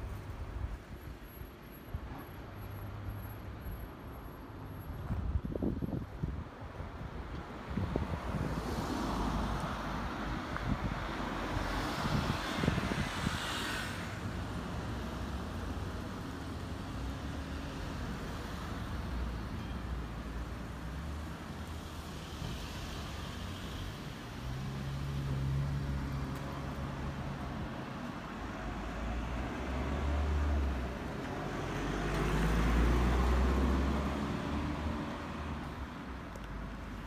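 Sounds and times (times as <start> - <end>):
cars passing: 7.5 - 37.0.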